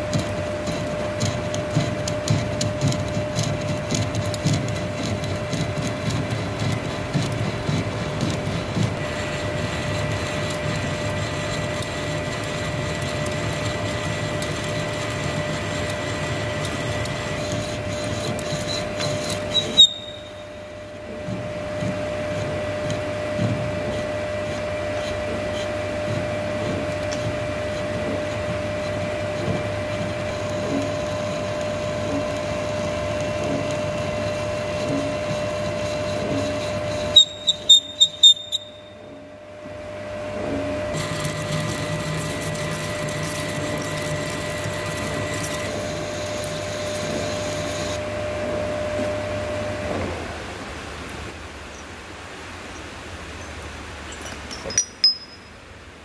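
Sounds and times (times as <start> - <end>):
lathe tool cutting metal: 0.0 - 20.5, 22.0 - 38.9, 41.0 - 48.0
steady machine whine: 0.0 - 51.4.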